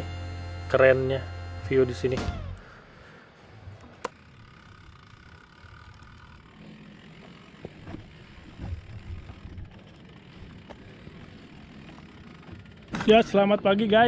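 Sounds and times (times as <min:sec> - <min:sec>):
wind buffeting microphone: 0:07.7 - 0:11.3.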